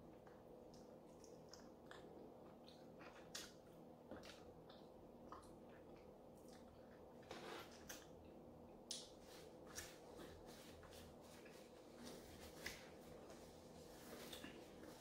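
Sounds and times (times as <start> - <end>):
faint steady hum: 0.0 - 15.0
lip smacks and chewing: 0.1 - 7.2.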